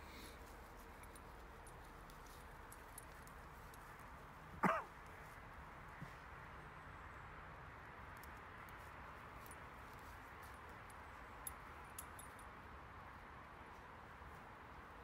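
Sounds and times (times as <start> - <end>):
faint outdoor hiss: 0.0 - 15.0.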